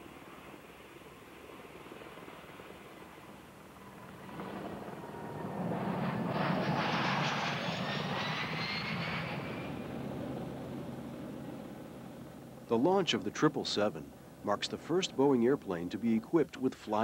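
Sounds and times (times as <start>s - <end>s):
jet airliner engines roaring: 0.0s - 17.0s
thin rising engine whine: 4.1s - 15.7s.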